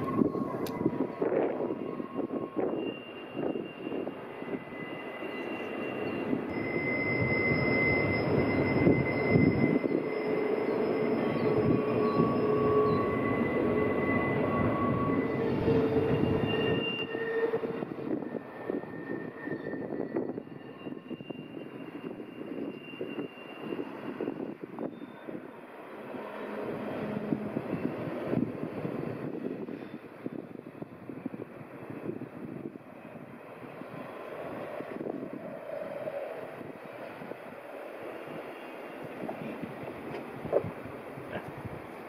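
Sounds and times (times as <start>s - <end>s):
wheel squeal: 0.0s - 25.5s
freight train rumble: 0.0s - 42.0s.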